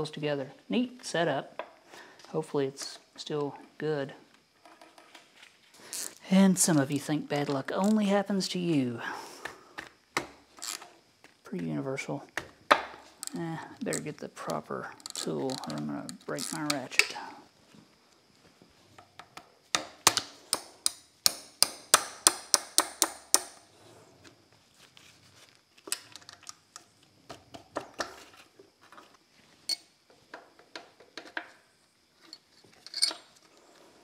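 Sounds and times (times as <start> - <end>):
sharp metal clicks: 20.0 - 23.6.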